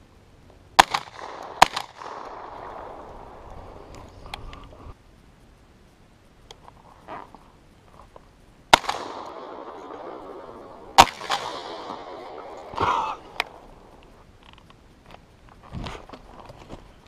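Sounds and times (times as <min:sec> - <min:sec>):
shotgun shots echoing: 0:00.8 - 0:03.8, 0:08.7 - 0:14.0.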